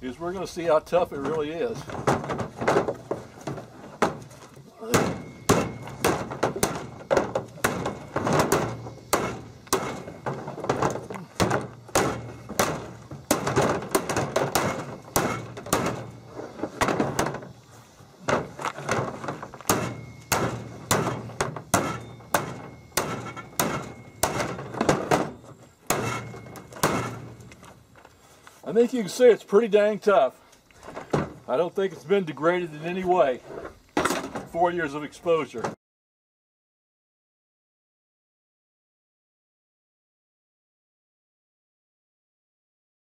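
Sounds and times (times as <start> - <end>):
hammer whacking plastic: 4.9 - 16.1.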